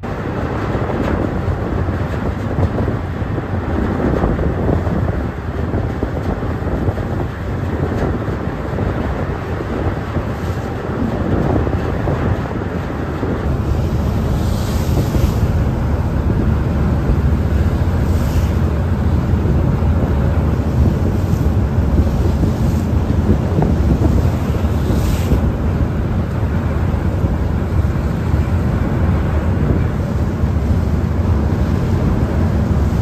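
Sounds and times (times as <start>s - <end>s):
wind buffeting microphone: 0.0s - 33.0s.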